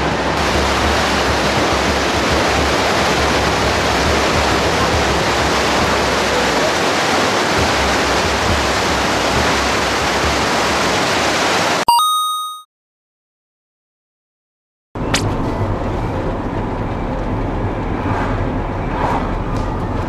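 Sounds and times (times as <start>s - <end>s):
underground river rushing: 0.0s - 11.8s.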